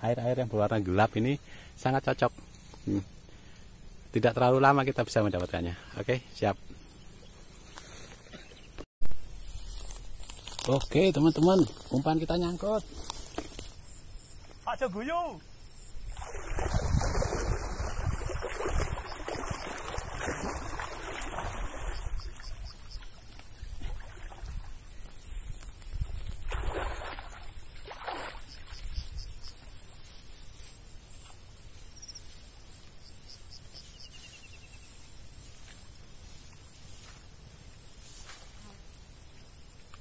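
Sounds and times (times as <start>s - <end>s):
water splashing and sloshing: 16.0s - 29.0s.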